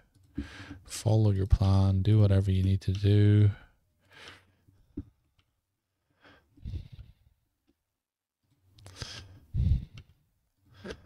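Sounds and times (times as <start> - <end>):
person breathing out: 8.9 - 10.1.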